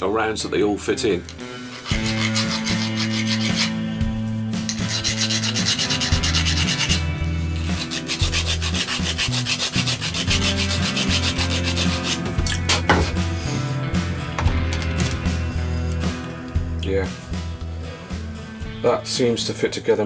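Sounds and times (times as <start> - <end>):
file rasping on metal: 1.6 - 3.9, 4.6 - 13.3.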